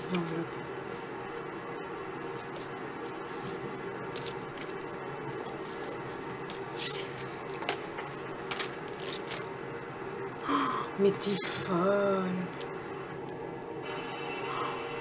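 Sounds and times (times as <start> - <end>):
faint steady background noise: 0.0 - 15.0
paper rustling: 2.2 - 9.5.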